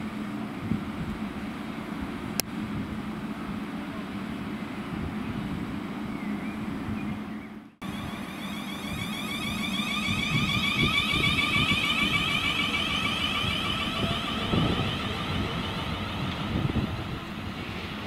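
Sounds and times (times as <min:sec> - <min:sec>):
train whine: 0:07.8 - 0:18.0.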